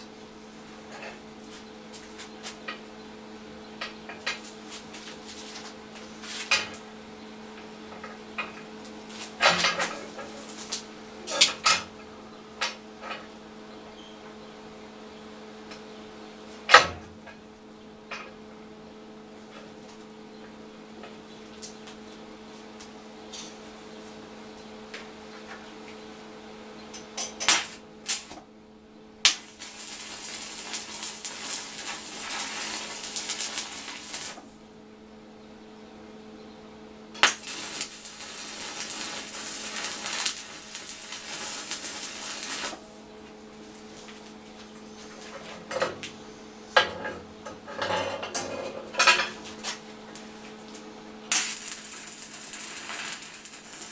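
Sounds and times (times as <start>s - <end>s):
steady electrical hum: 0.0s - 53.9s
welding arc crackling: 9.0s - 10.9s, 27.5s - 28.4s, 29.2s - 34.6s, 37.2s - 42.9s, 51.3s - 53.9s.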